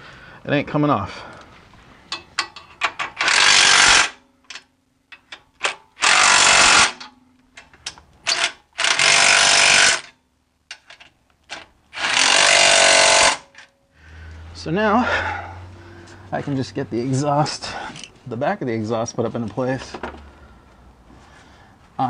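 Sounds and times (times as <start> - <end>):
impact wrench hammering: 5.2 - 7.1, 8.3 - 10.1, 11.9 - 13.6.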